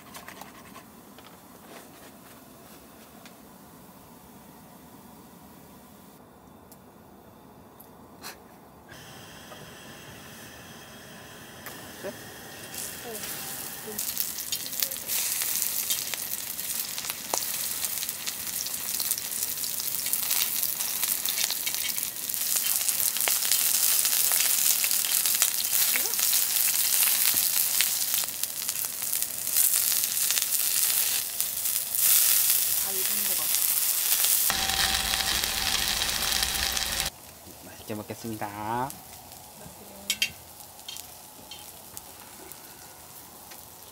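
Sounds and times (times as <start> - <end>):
food sizzling in a pan: 9.0 - 43.9.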